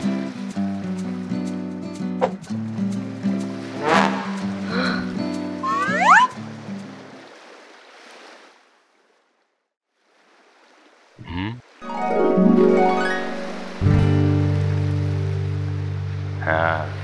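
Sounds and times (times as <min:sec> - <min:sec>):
harp glissando: 0:05.6 - 0:06.4, 0:11.8 - 0:15.2
wobbling sound effect: 0:05.6 - 0:06.4.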